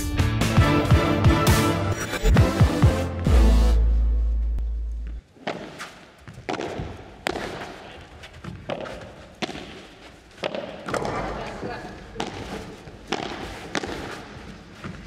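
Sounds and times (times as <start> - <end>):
ball bouncing off walls: 5.4 - 14.4
rackets hitting ball: 5.4 - 15.0.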